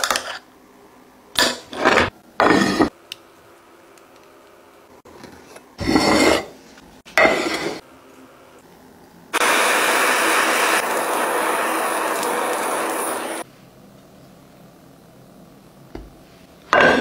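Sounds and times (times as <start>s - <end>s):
blowtorch hissing: 9.3s - 13.5s.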